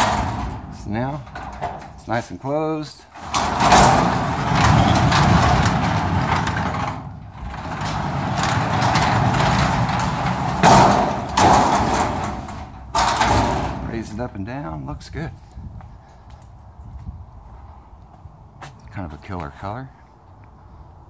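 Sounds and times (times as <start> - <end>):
garage door opener running: 0.0 - 2.1, 3.2 - 14.2
rollers rumbling along tracks: 0.0 - 15.7.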